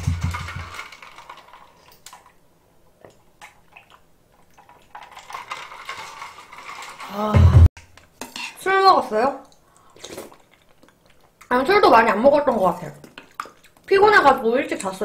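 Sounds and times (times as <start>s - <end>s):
mouth sounds while eating: 9.4s - 11.5s
person drinking from plastic cup: 9.8s - 11.4s.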